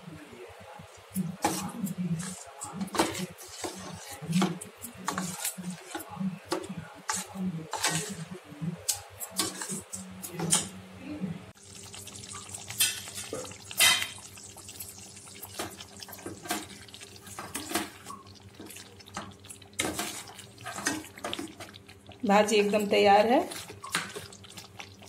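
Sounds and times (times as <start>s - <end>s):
spoon scraping steel pan: 7.1s - 8.2s
thick curry bubbling: 11.5s - 25.0s.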